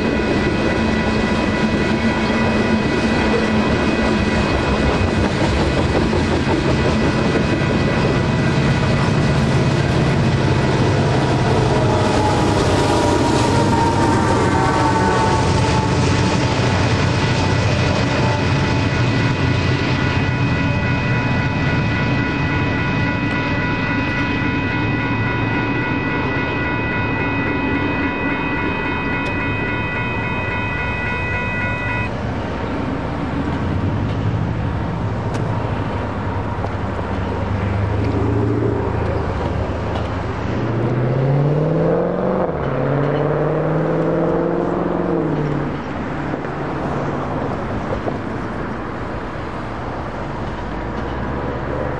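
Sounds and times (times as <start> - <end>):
freight train rumble: 0.0 - 51.9
road traffic: 0.0 - 51.9
electronic crossing bells ringing: 7.2 - 33.4.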